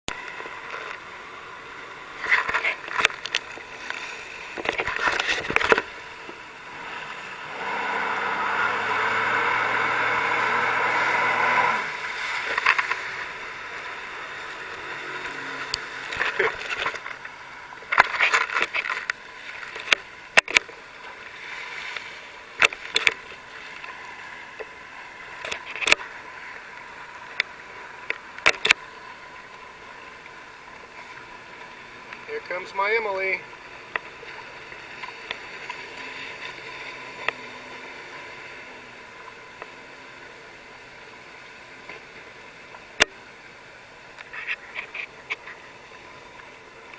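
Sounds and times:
choppy water hiss: 0:00.1 - 0:46.9
water splashes: 0:00.1 - 0:46.9
jet ski engine passing: 0:00.2 - 0:18.0, 0:31.0 - 0:43.0.

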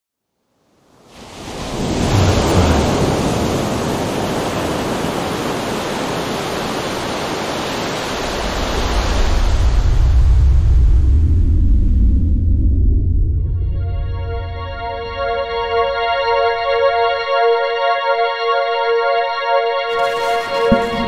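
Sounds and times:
ocean surf rushing: 0:01.0 - 0:10.8, 0:19.9 - 0:21.0.

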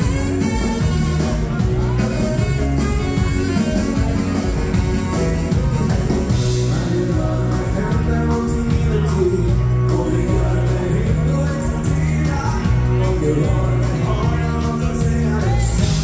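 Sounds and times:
live rock'n'roll band: 0:00.0 - 0:16.0
man singing into a microphone: 0:06.3 - 0:16.0.

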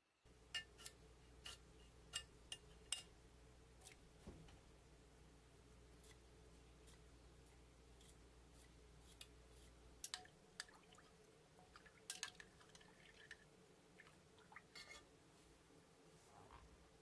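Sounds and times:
small wet sounds in water: 0:10.1 - 0:15.0.

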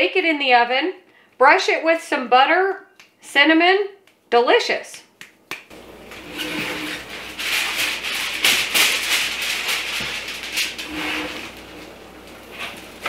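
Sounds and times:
aluminium foil crinkling: 0:05.8 - 0:13.0.

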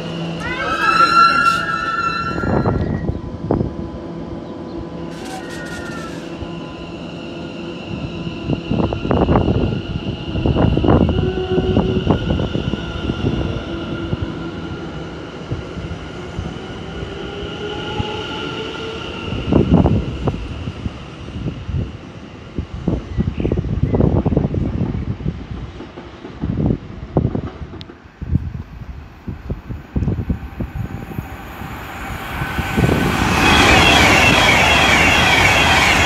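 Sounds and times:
wheels rumbling on rails: 0:00.0 - 0:07.2
train traction motors whining: 0:05.0 - 0:07.1.

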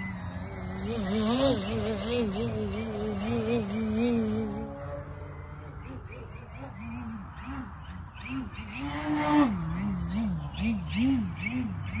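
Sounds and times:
electric model plane motor whining: 0:00.0 - 0:04.8.

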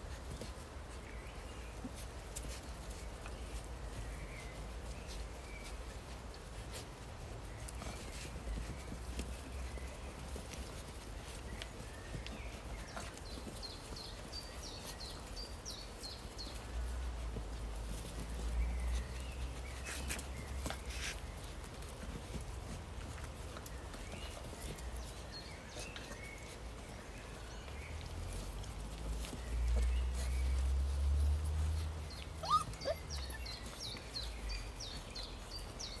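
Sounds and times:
puppies scuffling paws: 0:00.0 - 0:36.0
puppy high chirps: 0:32.2 - 0:33.8.

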